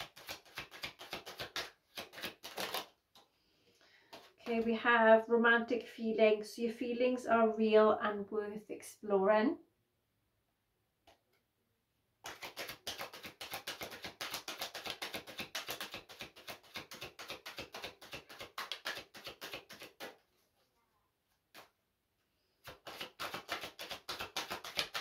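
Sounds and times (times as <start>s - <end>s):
cards shuffling: 0.0s - 3.3s, 4.0s - 4.6s, 12.2s - 20.3s, 21.5s - 21.8s, 22.6s - 25.0s.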